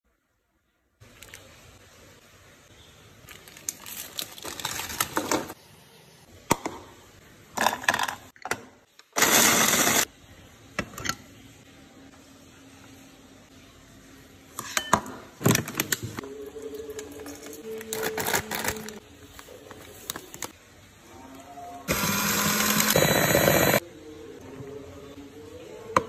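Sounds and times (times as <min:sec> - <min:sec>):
plastic packet crinkling: 0:03.3 - 0:05.5, 0:16.9 - 0:20.5
food processor grinding: 0:09.2 - 0:10.0, 0:21.9 - 0:23.8.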